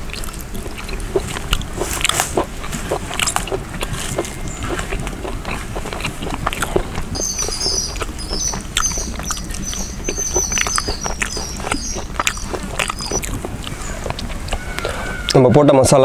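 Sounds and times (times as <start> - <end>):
chewing and lip-smacking: 0.0 - 15.4
food squelching: 0.0 - 15.5
high chirps: 6.5 - 15.4.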